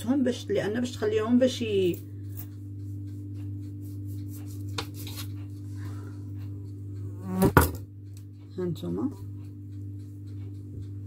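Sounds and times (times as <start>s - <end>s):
steady low hum: 0.0s - 11.0s
knife sawing through pastry dough: 2.7s - 6.7s.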